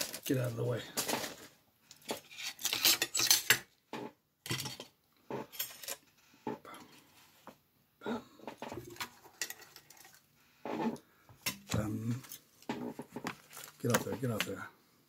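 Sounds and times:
metal parts clinking and scraping: 0.0s - 3.6s, 4.4s - 6.1s, 8.9s - 10.3s.

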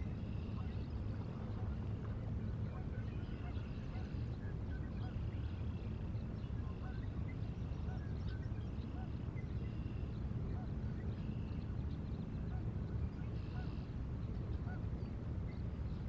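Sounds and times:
low outdoor rumble: 0.0s - 16.0s
bird calls: 12.4s - 13.9s.

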